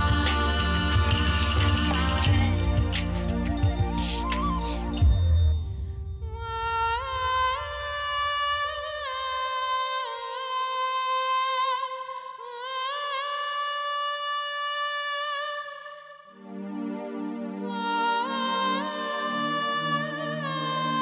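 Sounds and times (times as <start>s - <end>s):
low rumble: 0.0s - 9.7s
woman singing high melody: 6.2s - 16.4s, 17.6s - 21.0s.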